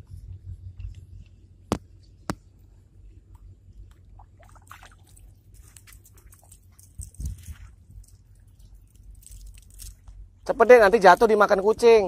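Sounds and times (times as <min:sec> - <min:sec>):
low steady rumble: 0:00.0 - 0:12.0
rubbing and scratching: 0:05.1 - 0:10.1.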